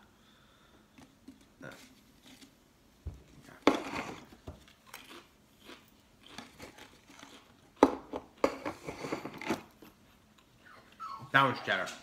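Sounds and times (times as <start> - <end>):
crisp crunching: 3.7 - 7.6
chewing crunches: 4.6 - 8.4.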